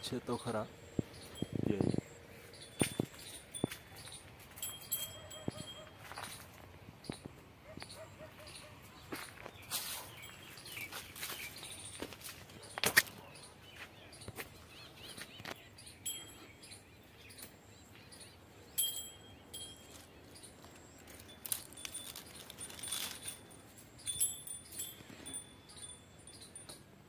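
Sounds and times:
high bird chirps: 0.8 - 26.8
leaves rustling: 9.5 - 13.2, 19.8 - 25.3.

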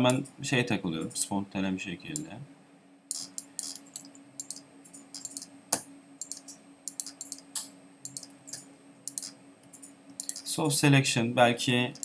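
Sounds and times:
faint steady hum: 0.0 - 12.0
mouse and keyboard clicking: 5.2 - 5.5, 6.2 - 10.5.

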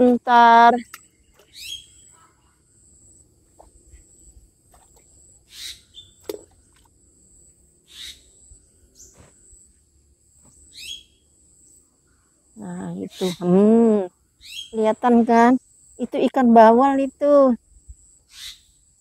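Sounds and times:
high insect drone: 0.0 - 19.0
short bird chirps: 0.8 - 2.6, 5.5 - 6.3, 7.9 - 8.3, 10.7 - 11.2, 18.3 - 18.7.

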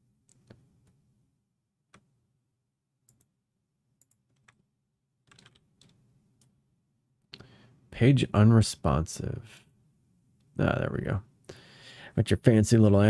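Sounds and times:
soft computer mouse clicks: 4.0 - 4.5.

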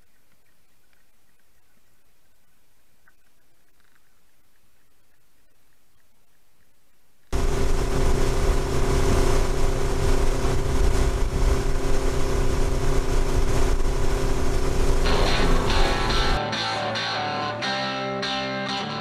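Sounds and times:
outboard motor running: 7.3 - 16.4
electric guitar music: 15.0 - 19.0.

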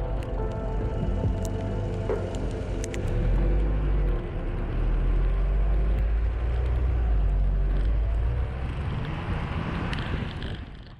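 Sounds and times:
diesel engine rumbling: 0.0 - 10.9.

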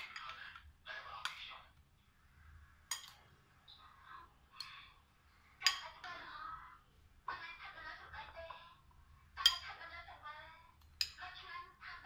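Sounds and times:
soft stirring sounds: 0.0 - 12.0
spoon clinking ceramic bowl: 2.9 - 3.2, 5.6 - 6.1, 9.4 - 9.7, 10.8 - 11.2.

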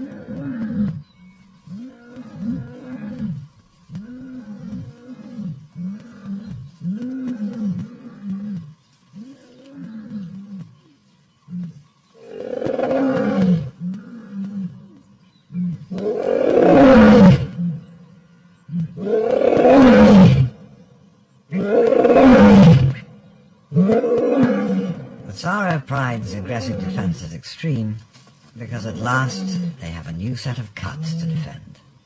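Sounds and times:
lion roaring: 11.5 - 17.9, 18.7 - 20.6, 21.5 - 23.1, 23.7 - 25.3, 26.2 - 27.2.

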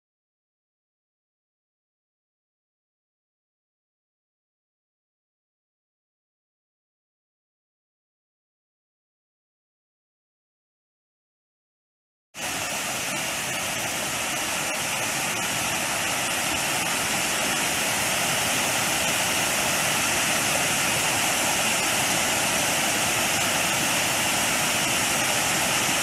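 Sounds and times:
water rushing down waterfall: 12.4 - 26.0.

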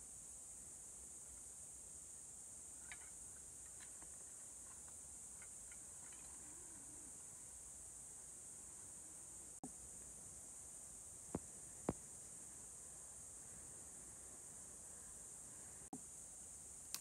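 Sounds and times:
forest insects droning: 0.0 - 17.0
faint clicks of sticks: 2.8 - 6.9.

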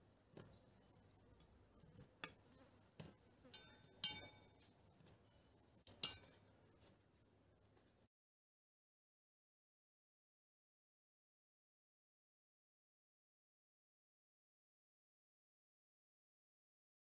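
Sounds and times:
metal tongs clinking on plates: 3.4 - 4.6, 5.8 - 6.9.

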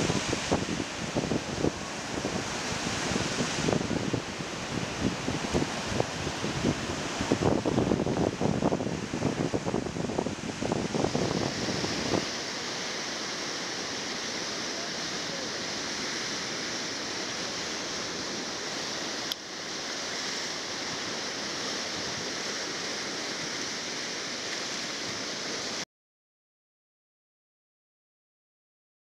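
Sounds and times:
wind buffeting microphone: 0.0 - 12.4
surf breaking on beach: 0.0 - 25.8.

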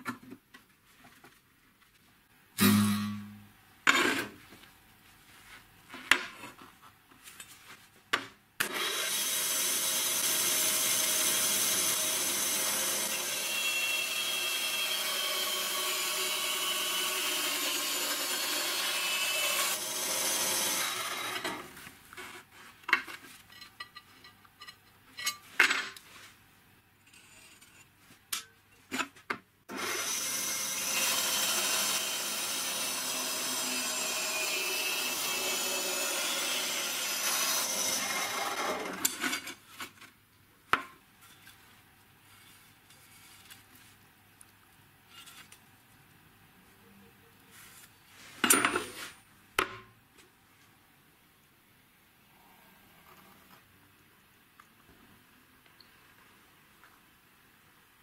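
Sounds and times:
band saw cutting steel: 8.6 - 21.7, 29.7 - 39.1.

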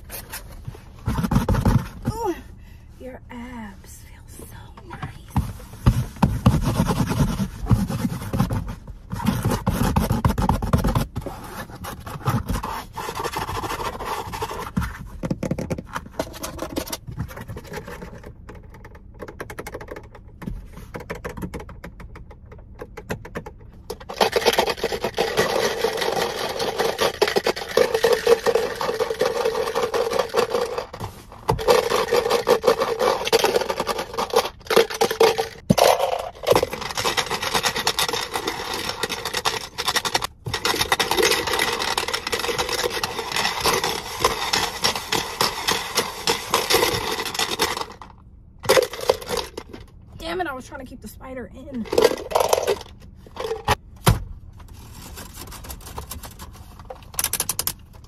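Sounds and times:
continuous scraping: 0.0 - 21.5, 23.9 - 53.8, 54.6 - 58.0
hands rubbing car upholstery: 5.0 - 15.1.

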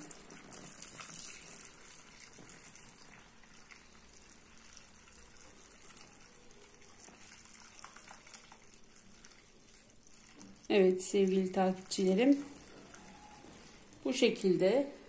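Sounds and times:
liquid trickling and frothing: 0.0 - 14.5.

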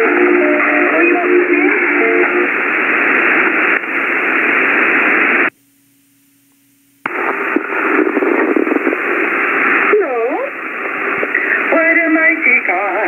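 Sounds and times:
radio static hiss: 0.0 - 5.6, 6.5 - 13.0
radio click: 3.4 - 4.0, 6.5 - 9.9.

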